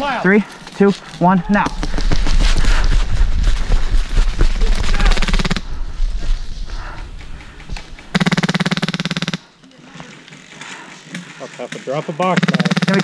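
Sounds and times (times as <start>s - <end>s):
airsoft guns firing bursts: 5.1s - 5.6s, 8.1s - 9.4s, 12.3s - 13.0s.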